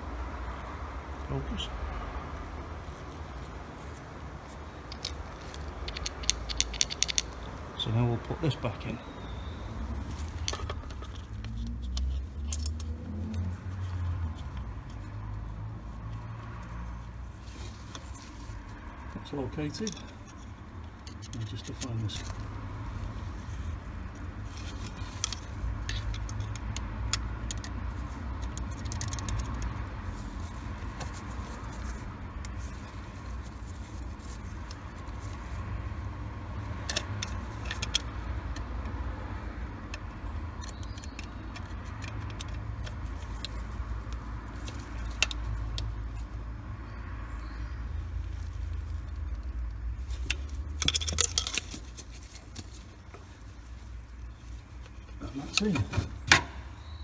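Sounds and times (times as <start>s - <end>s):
screwdriver clicking and scraping metal: 4.8s - 7.5s, 19.7s - 22.4s, 23.5s - 29.8s, 39.9s - 45.9s, 50.0s - 52.8s.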